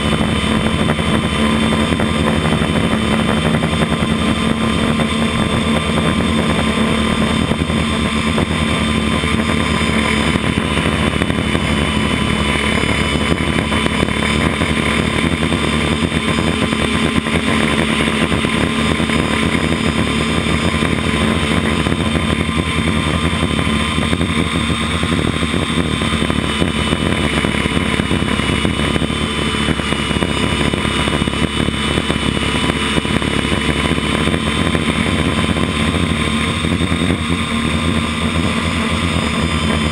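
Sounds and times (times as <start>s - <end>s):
model aircraft propeller whine: 0.0s - 39.9s.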